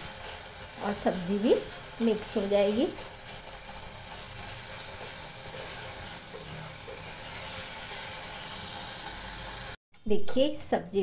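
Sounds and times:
food sizzling in a pot: 0.0 - 9.8
wooden spatula stirring: 4.1 - 8.2.

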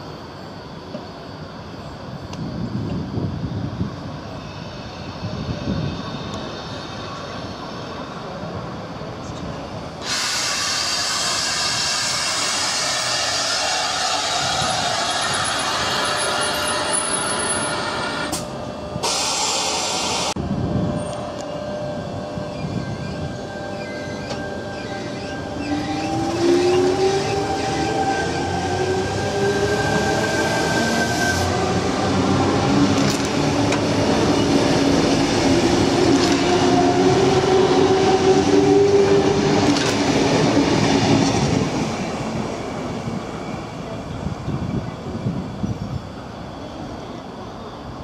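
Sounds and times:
electric train traction whine: 0.0 - 48.0
wheels rumbling on rails: 11.3 - 19.0, 20.4 - 47.2.

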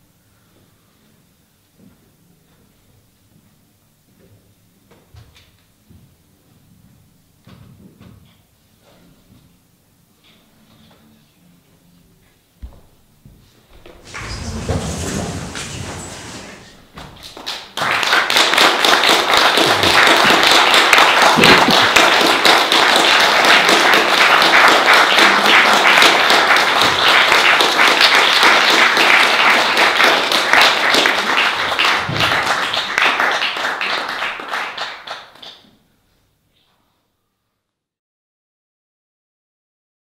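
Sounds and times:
audience applauding: 14.0 - 35.6.

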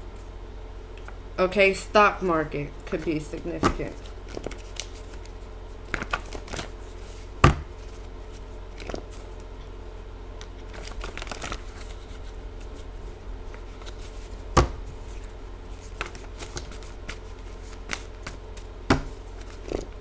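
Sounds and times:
cards being shuffled: 2.9 - 9.5, 10.4 - 20.0.

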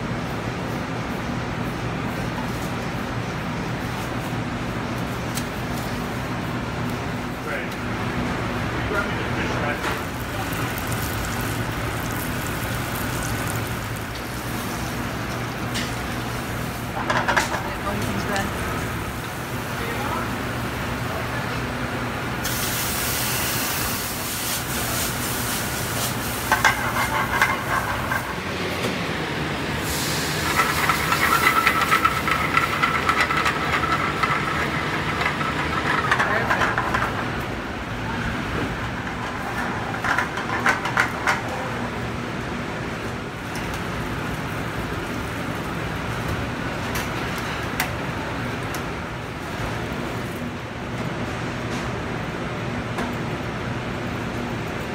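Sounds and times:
gas range and ventilation hum: 0.0 - 54.9
metal pans clinking and clattering: 26.5 - 28.4.

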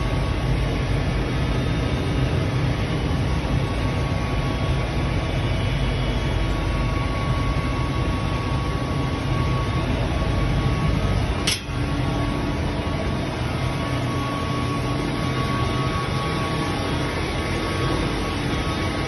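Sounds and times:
printing press rumble and hum: 0.0 - 19.0
thin constant whine: 0.0 - 19.0
sharp click: 11.5 - 11.8.

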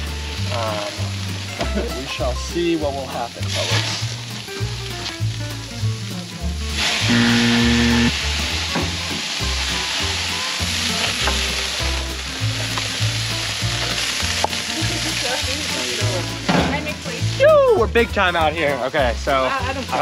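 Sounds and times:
background music bass line: 0.0 - 20.0
fish sizzling on grill: 0.0 - 20.0
held electronic tone: 7.1 - 8.2.

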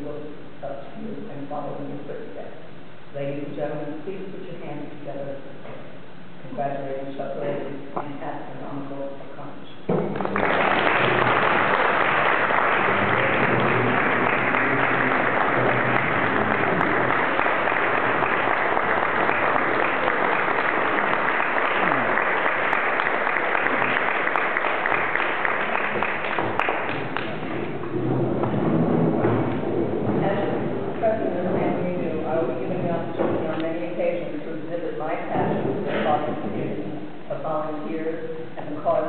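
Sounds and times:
audience applauding: 10.0 - 28.3.

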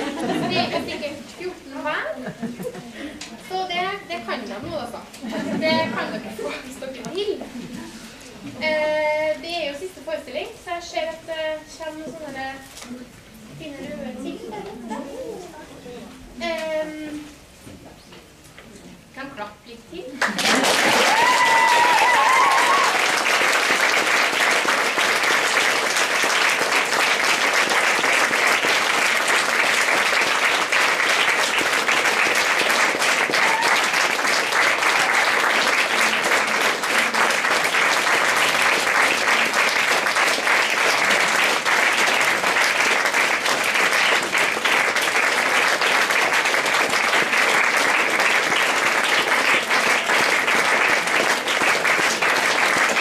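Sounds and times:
crowd applauding: 0.0 - 0.8, 20.2 - 53.0.

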